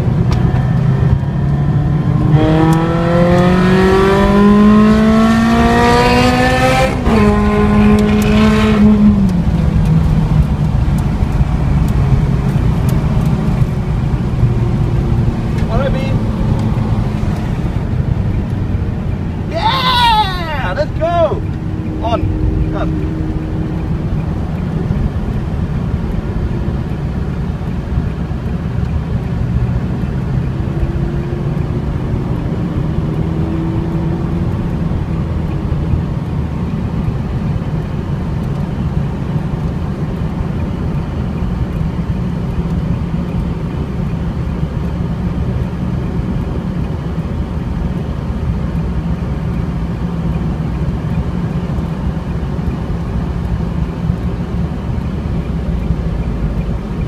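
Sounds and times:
car engine drone: 0.0 - 57.0
tyre and road noise: 0.0 - 57.0.

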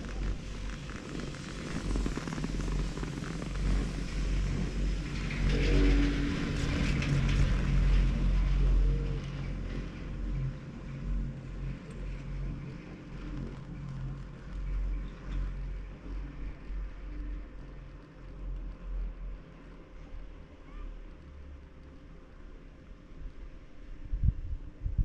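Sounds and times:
sheave wheels clicking: 0.0 - 8.3
chairlift rumble and hum: 0.0 - 25.0
wind on microphone: 24.0 - 25.0.

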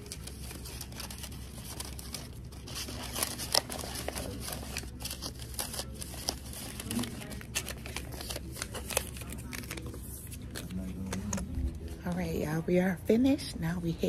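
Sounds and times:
rustling and crinkling handling: 0.0 - 12.7.

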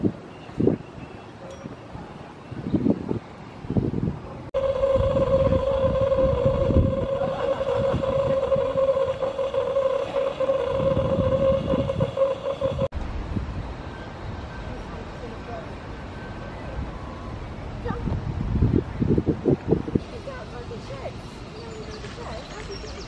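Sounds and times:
steam locomotive high tone: 4.6 - 12.9, 13.8 - 17.6.

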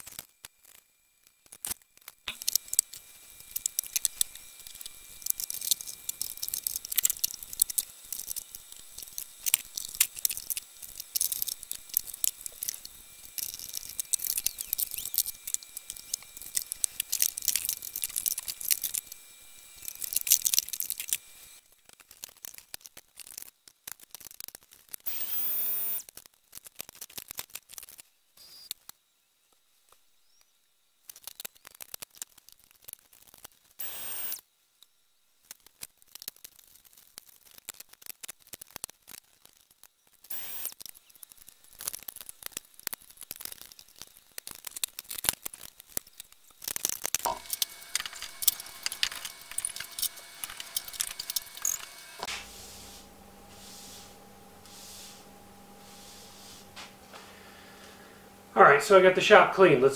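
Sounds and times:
tools clattering and scraping: 47.2 - 57.3
brief steady whir: 47.3 - 59.4.

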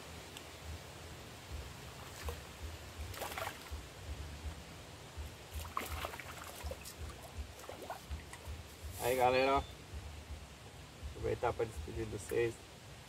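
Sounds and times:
fish splashing at water surface: 3.1 - 3.8, 5.6 - 8.5.

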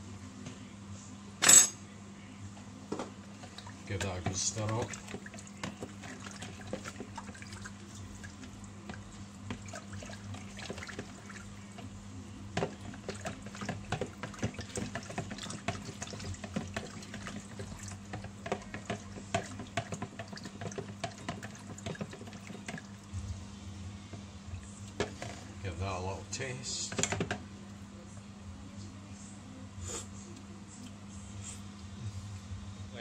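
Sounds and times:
steady low hum: 0.0 - 33.0
spoon stirring liquid in a jug: 3.4 - 23.1.

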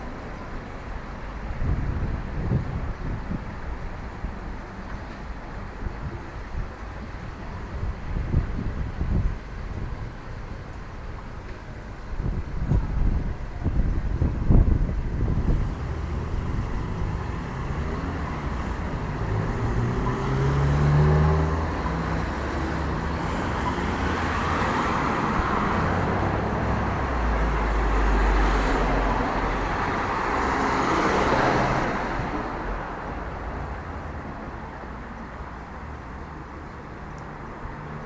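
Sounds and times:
cars driving past: 14.5 - 38.0.

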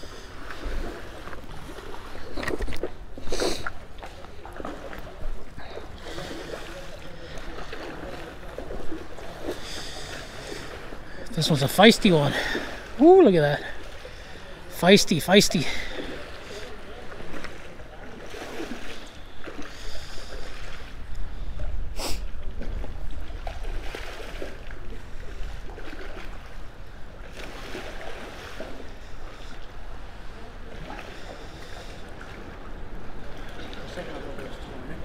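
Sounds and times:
river water flowing over rocks: 0.0 - 19.1.

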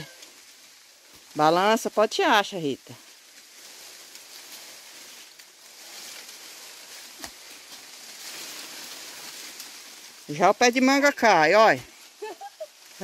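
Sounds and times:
leaves rustling: 0.0 - 13.0.

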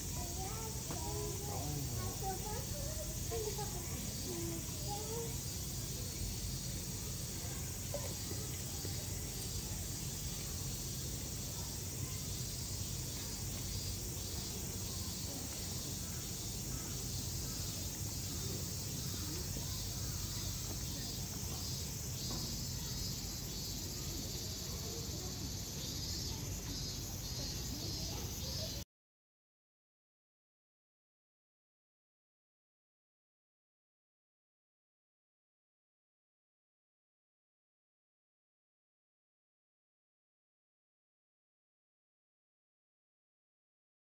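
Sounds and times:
insects chirping: 0.0 - 28.8.

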